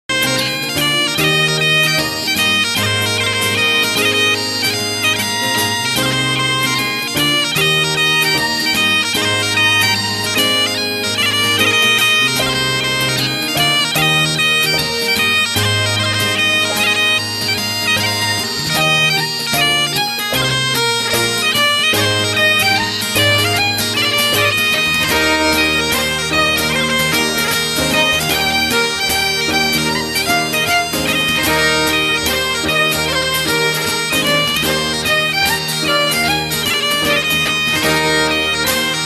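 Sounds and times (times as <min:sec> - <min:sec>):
bagpipe tune: 0:00.0 - 0:39.0.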